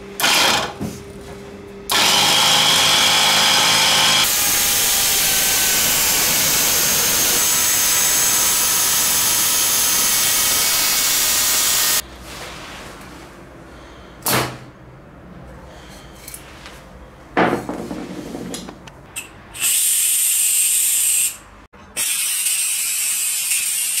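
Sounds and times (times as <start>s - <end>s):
aerosol can hissing: 4.3s - 12.0s.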